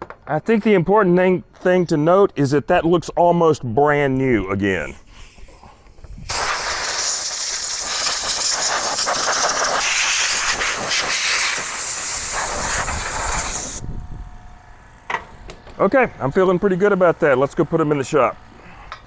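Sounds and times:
compressed air blow gun hissing: 4.9 - 13.9.

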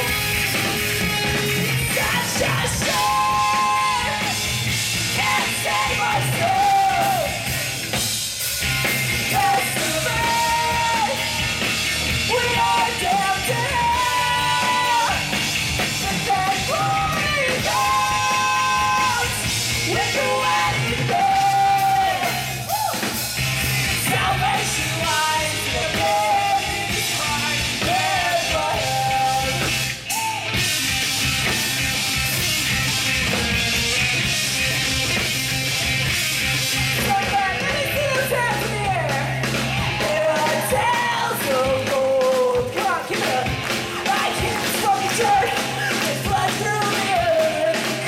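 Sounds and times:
live punk rock band playing: 0.0 - 48.0
man singing into microphone: 40.0 - 48.0.

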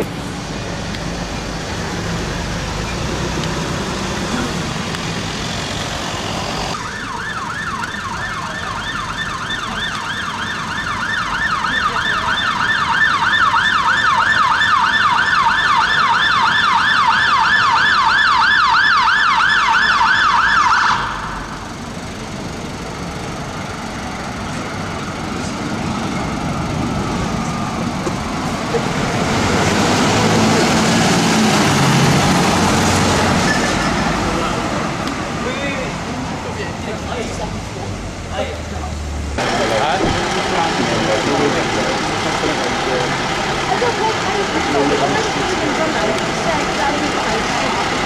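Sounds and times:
street noise: 0.0 - 48.0
fire engine siren yelping: 5.1 - 36.3.

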